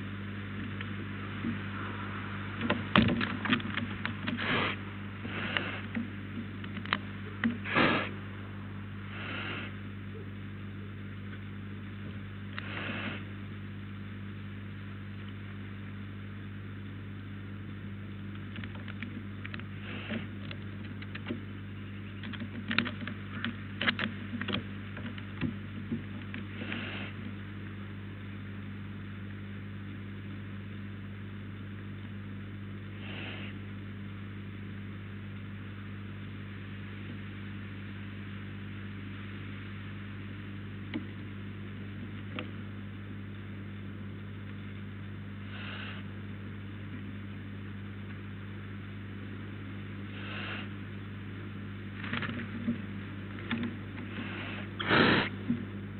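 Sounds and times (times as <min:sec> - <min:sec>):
electrical hum: 0:00.0 - 0:55.9
owl shifting on wood: 0:02.6 - 0:08.1.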